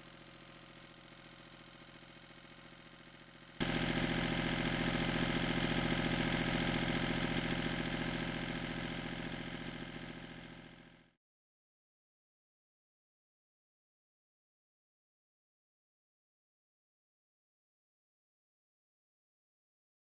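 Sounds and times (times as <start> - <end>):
marine diesel engine running: 0.0 - 11.0.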